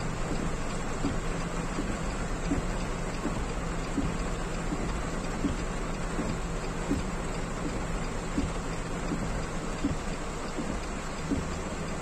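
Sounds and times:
heavy rain on car roof: 0:00.0 - 0:12.0
light ticking: 0:00.0 - 0:12.0
low vehicle hum: 0:00.0 - 0:12.0.

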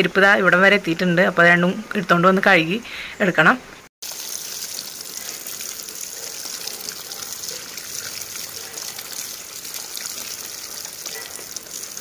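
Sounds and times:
water splashing over slippers: 0:04.0 - 0:12.0.

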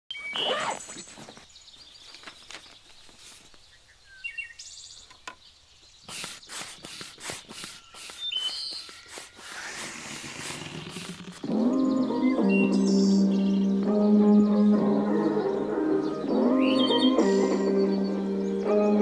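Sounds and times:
birds chirping: 0:00.1 - 0:19.0
handling rustles: 0:00.2 - 0:03.7
hand pump hissing air strokes: 0:06.0 - 0:11.5.

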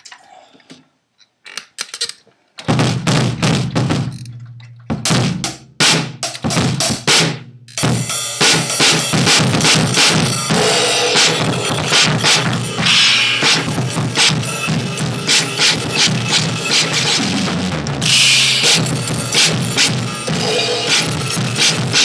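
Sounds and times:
drum kit playing: 0:02.6 - 0:22.0.

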